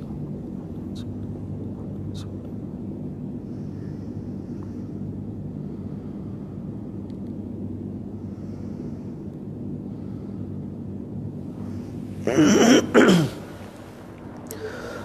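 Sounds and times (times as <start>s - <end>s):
low hum: 0.0s - 15.0s
man coughing: 12.2s - 13.6s.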